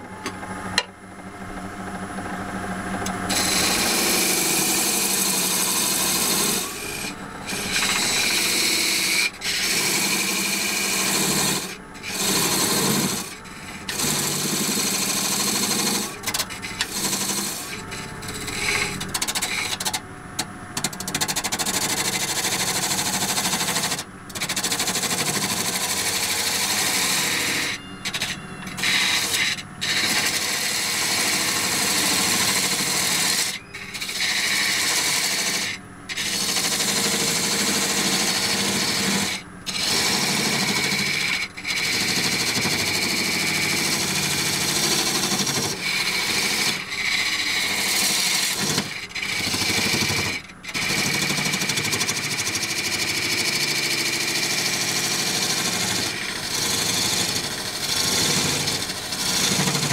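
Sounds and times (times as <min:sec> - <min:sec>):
tool scraping spinning wood: 0:00.0 - 0:59.9.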